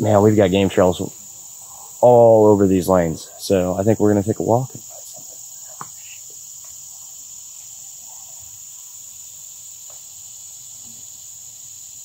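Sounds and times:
shrill insect chorus: 0.0s - 12.0s.

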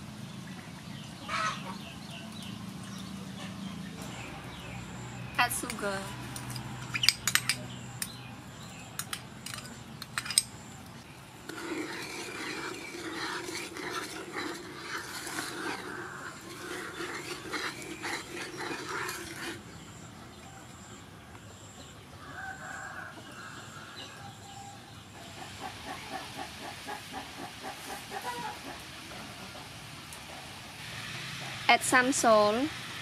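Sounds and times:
metal spoon clinking bowl: 9.0s - 10.5s
animal calling: 25.1s - 28.8s.

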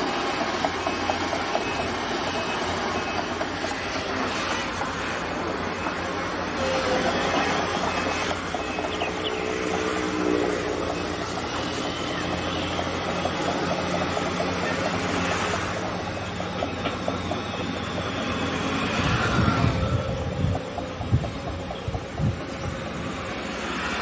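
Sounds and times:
diesel engines running: 0.0s - 24.0s
wind buffeting microphone: 18.8s - 23.2s.

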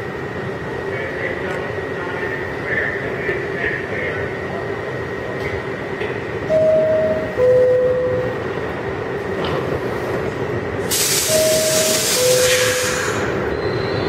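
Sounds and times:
stopped train humming: 0.0s - 14.0s
two-tone door chime: 6.5s - 8.4s.

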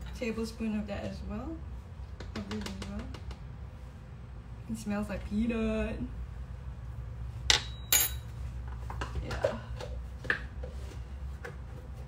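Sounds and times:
metal spoon and containers clinking: 7.5s - 8.4s.

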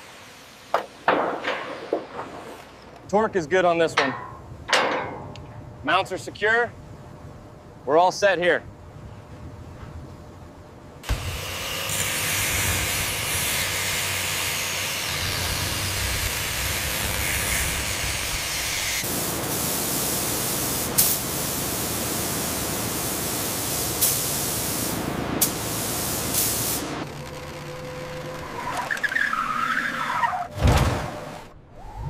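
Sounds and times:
angle grinder cutting steel: 11.1s - 19.0s
spray guns hissing: 15.6s - 26.9s.

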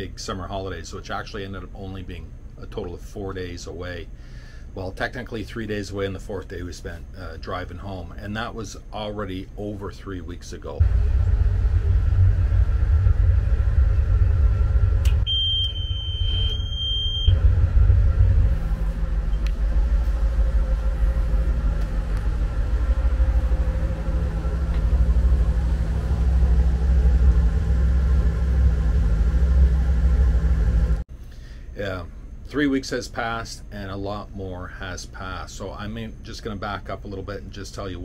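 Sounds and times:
vehicle engine rumble: 10.8s - 31.1s
high-pitched beep: 15.2s - 17.4s.

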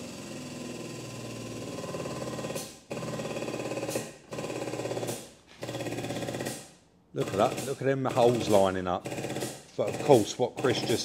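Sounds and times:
hydraulic pump rattling: 7.2s - 11.0s.

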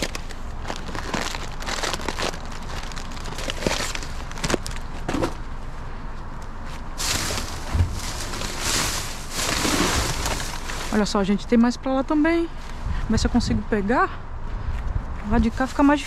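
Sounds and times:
plastic bags crinkling: 0.0s - 5.0s, 7.0s - 11.1s
dull thump: 7.0s - 10.6s.

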